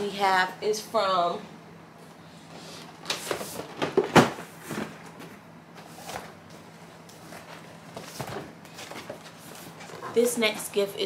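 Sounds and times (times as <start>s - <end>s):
cardboard rustling: 3.1s - 10.9s.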